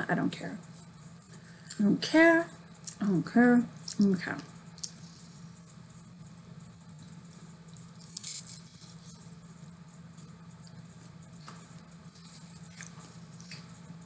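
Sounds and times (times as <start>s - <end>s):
steady low hum: 0.0s - 14.0s
person chewing crunchy food: 12.0s - 13.8s.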